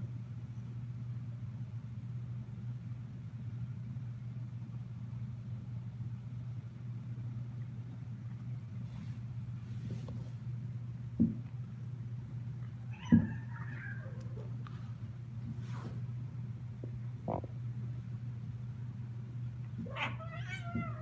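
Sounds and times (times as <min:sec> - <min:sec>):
cat purring: 0:16.8 - 0:17.6.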